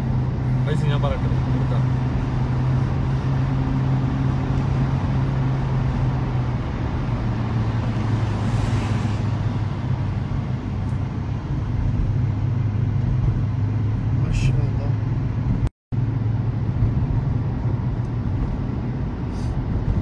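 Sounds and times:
car engine drone: 0:00.0 - 0:20.0
truck passing whoosh: 0:01.3 - 0:14.0.

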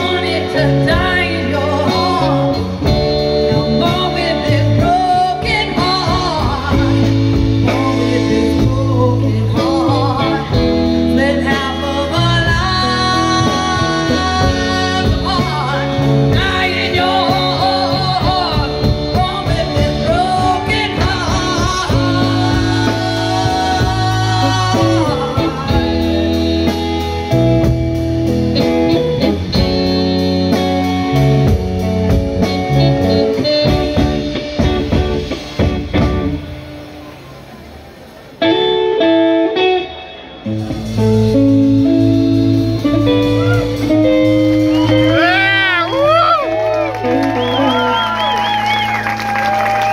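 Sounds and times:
woman singing: 0:00.0 - 0:26.8
drums: 0:00.0 - 0:49.9
electric bass: 0:00.0 - 0:49.9
electric guitar: 0:00.0 - 0:49.9.

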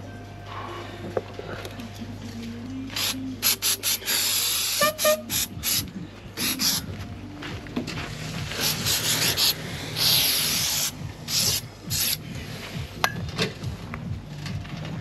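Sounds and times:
aerosol can spraying: 0:02.9 - 0:06.8, 0:08.5 - 0:12.2.

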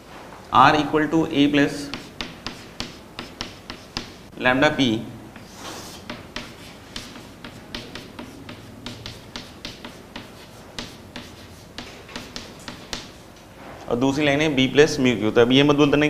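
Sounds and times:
chalk scratching: 0:01.7 - 0:04.3, 0:05.4 - 0:13.4
chalk tapping on chalkboard: 0:01.8 - 0:04.3, 0:05.3 - 0:13.5.

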